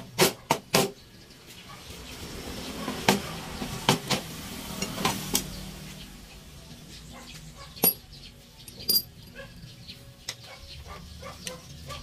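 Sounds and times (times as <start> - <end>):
ringing metal clink: 7.8 - 9.4.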